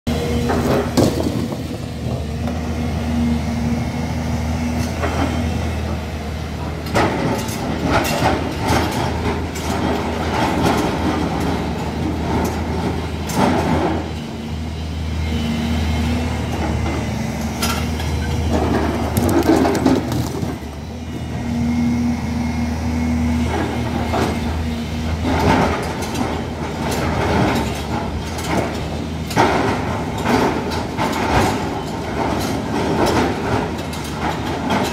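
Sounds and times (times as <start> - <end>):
excavator diesel engine droning: 0.1 - 34.9
rocks knocking and clattering: 18.7 - 20.8
bucket scraping rock: 18.9 - 20.8.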